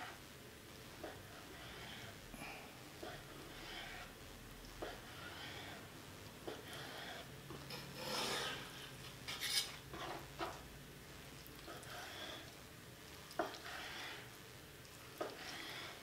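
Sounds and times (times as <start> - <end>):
knife rubbing and scraping fish: 1.0 - 2.2, 3.1 - 4.1, 4.9 - 5.9, 6.5 - 10.6, 11.7 - 12.5, 13.4 - 14.3, 15.2 - 16.0.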